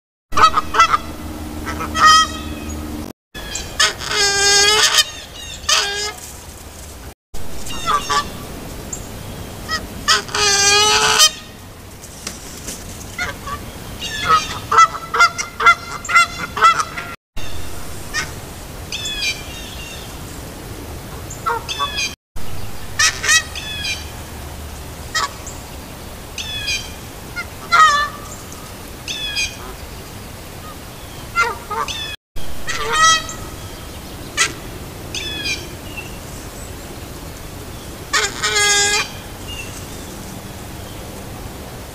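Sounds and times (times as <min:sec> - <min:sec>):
geese honking: 0:00.3 - 0:06.3, 0:07.6 - 0:08.5, 0:09.7 - 0:11.6, 0:13.2 - 0:19.6, 0:21.1 - 0:22.2, 0:22.9 - 0:24.4, 0:25.1 - 0:25.5, 0:26.4 - 0:28.4, 0:31.4 - 0:33.8, 0:38.1 - 0:39.8.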